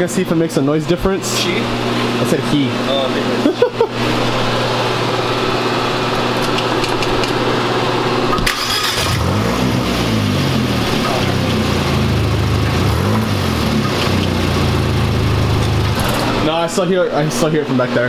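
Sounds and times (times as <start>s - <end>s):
car engine idling and revving: 8.3s - 16.4s.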